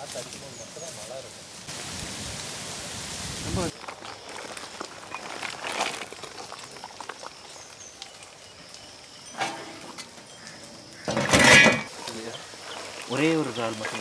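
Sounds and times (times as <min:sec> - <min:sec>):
water boiling in pot: 0:01.5 - 0:14.0.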